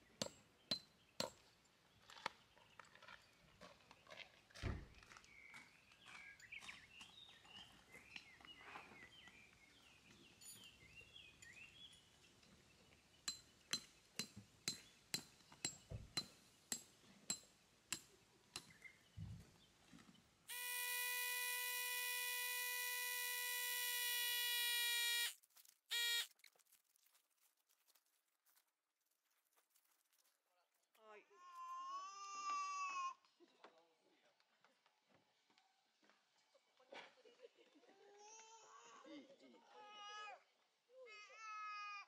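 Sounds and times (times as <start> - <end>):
electric air pump humming: 20.5 - 26.3.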